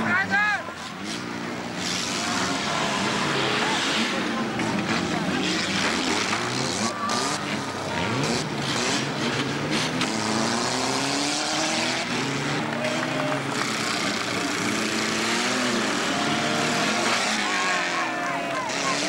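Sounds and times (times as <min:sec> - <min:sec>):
car engines revving: 0:00.0 - 0:19.0.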